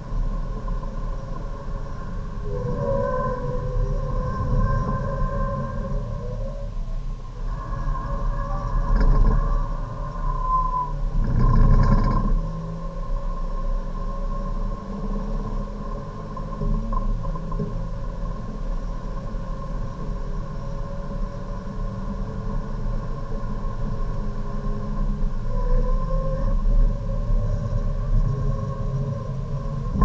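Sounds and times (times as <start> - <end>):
road and tyre rumble: 0.0 - 30.0
race car engine at full throttle: 7.8 - 10.3, 11.0 - 30.0.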